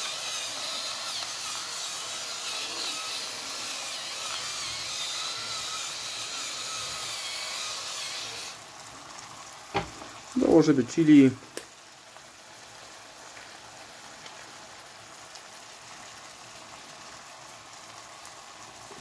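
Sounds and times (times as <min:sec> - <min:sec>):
pepper mill grinding: 0:00.0 - 0:08.6
sauce sizzling faintly: 0:00.0 - 0:19.0.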